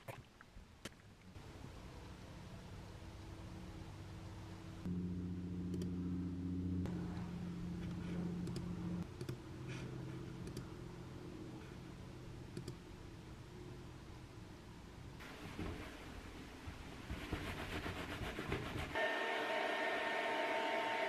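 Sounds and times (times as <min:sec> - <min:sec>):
low hum: 0:01.2 - 0:14.4.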